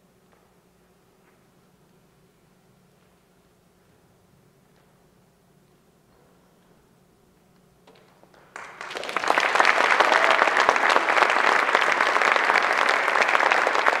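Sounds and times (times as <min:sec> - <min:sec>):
audience applauding: 0:08.5 - 0:14.0.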